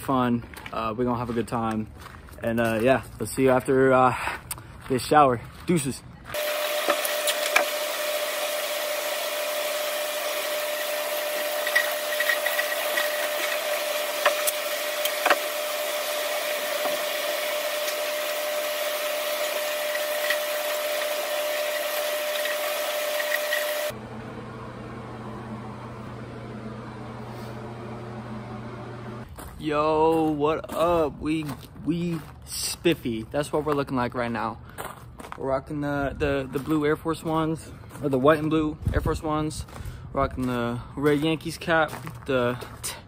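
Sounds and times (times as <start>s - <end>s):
low hum: 6.4s - 29.3s.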